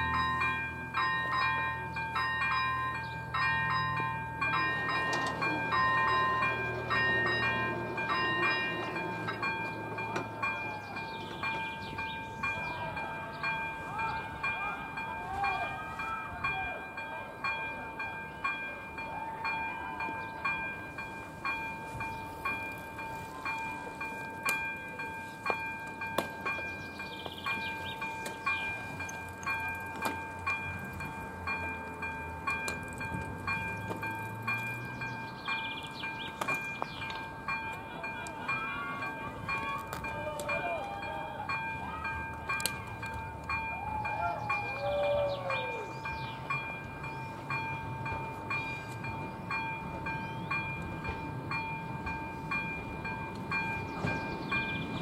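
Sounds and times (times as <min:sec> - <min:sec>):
level crossing bell dinging: 0:00.0 - 0:55.0.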